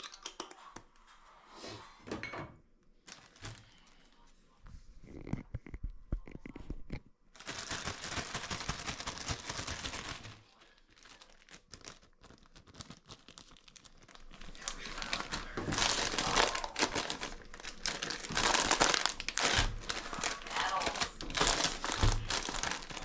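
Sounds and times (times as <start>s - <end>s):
packaging crinkling: 3.0s - 4.0s, 6.9s - 23.0s.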